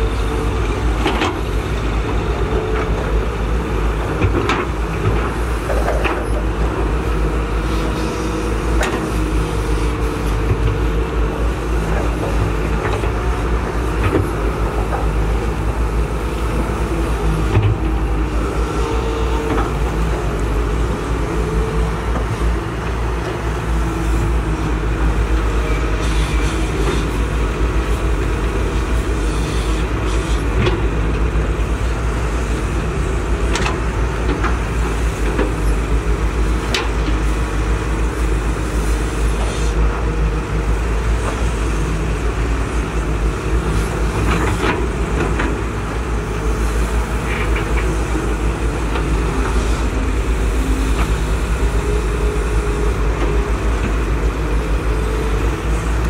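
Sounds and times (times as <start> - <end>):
excavator diesel engines running: 0.0 - 56.0.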